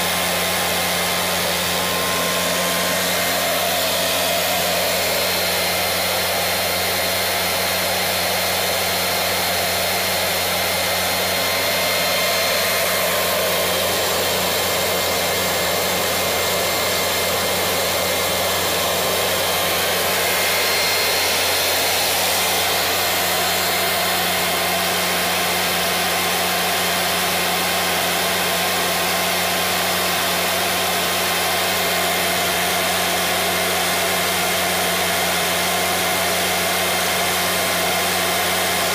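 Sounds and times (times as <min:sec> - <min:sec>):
high whining tones: 0:00.0 - 0:26.0
gas turbine running: 0:00.0 - 0:38.9.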